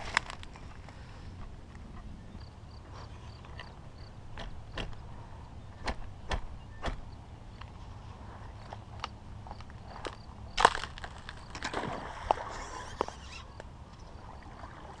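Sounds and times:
sharp crackle: 0:10.0 - 0:13.4
fishing line hissing off spool: 0:12.2 - 0:13.5.

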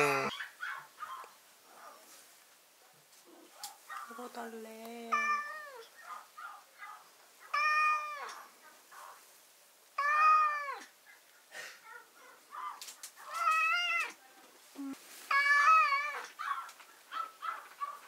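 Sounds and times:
cat meowing: 0:05.1 - 0:05.9, 0:07.5 - 0:08.4, 0:10.0 - 0:10.9, 0:13.3 - 0:14.2, 0:15.3 - 0:16.4.

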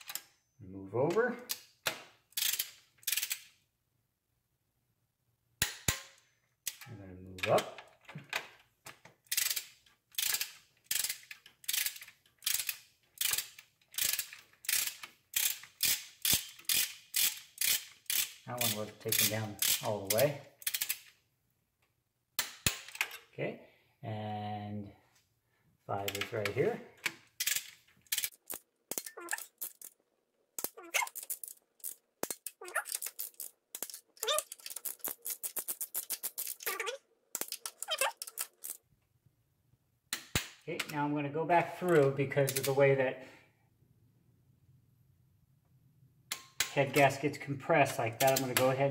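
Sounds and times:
ratchet wrench clicking: 0:02.3 - 0:03.5, 0:09.3 - 0:21.1, 0:27.4 - 0:29.9, 0:30.6 - 0:36.8.

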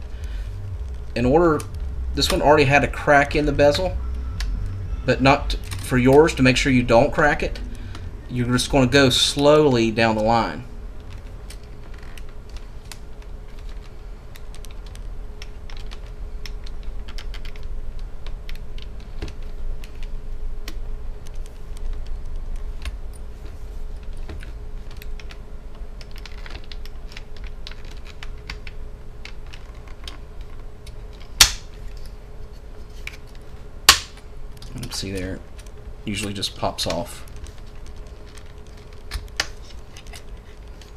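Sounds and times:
sharp snap of plastic clip: 0:31.4 - 0:31.7.

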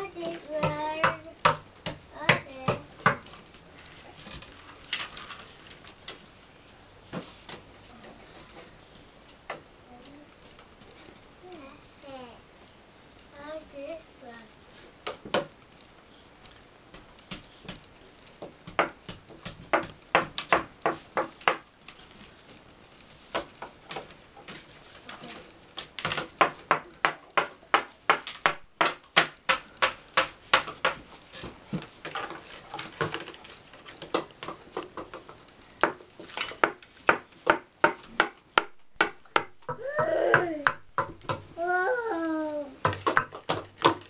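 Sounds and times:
plastic cups tapping on paper: 0:18.4 - 0:22.0, 0:23.1 - 0:44.0.

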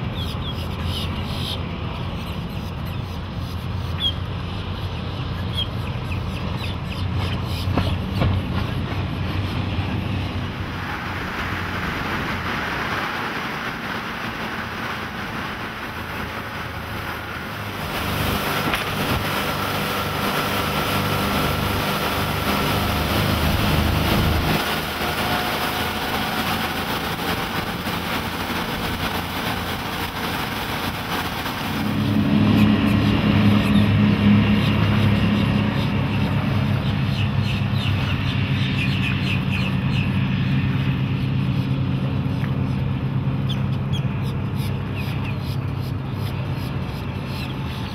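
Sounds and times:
boat engines running at speed: 0:00.0 - 0:47.9
water rushing past: 0:08.0 - 0:43.5.

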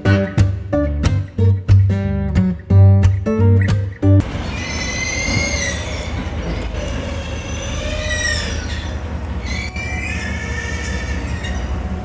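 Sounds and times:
diesel locomotive rumbling: 0:03.3 - 0:12.0
train wheels squealing: 0:04.5 - 0:12.0.

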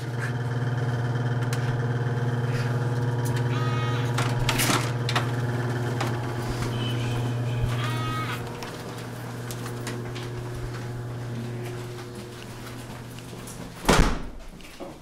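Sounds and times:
low mechanical hum: 0:00.0 - 0:14.8
door being pushed open: 0:03.9 - 0:08.6, 0:13.6 - 0:14.4.

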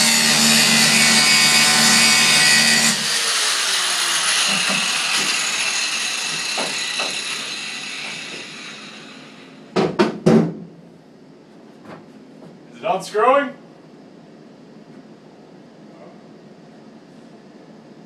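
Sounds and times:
angle grinder cutting bolt: 0:00.0 - 0:09.4.

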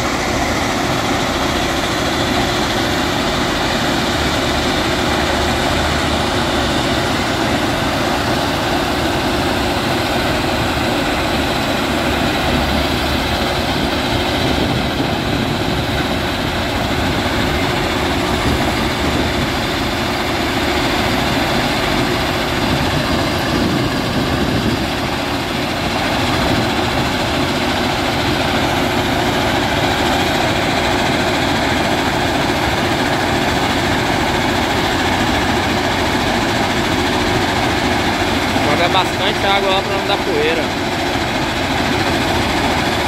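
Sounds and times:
heavy machinery din: 0:00.0 - 0:43.0.

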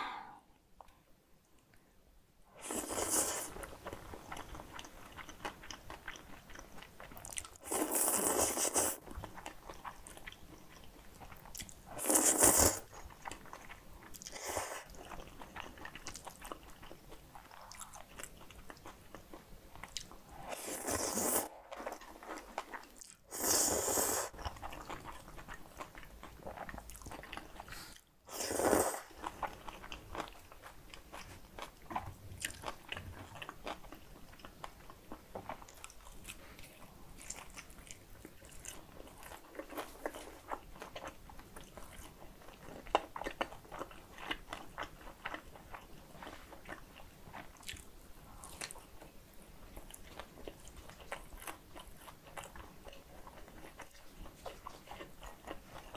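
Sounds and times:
loud noodle slurps: 0:23.3 - 0:24.3, 0:28.3 - 0:29.1.

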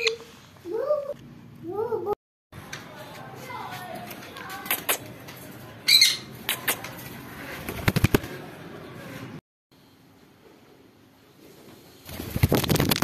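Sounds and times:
wings flapping: 0:06.6 - 0:08.4, 0:12.0 - 0:13.0.

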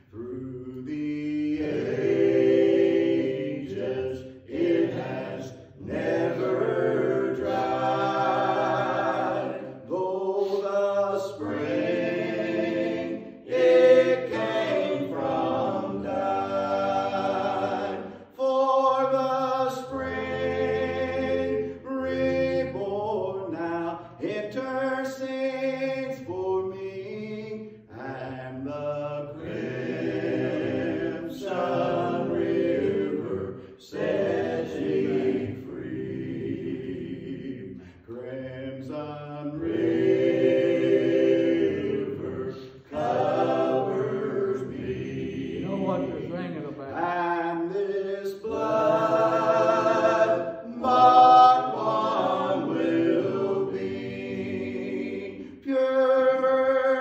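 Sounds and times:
vocal quartet singing a hymn: 0:00.0 - 0:57.0.

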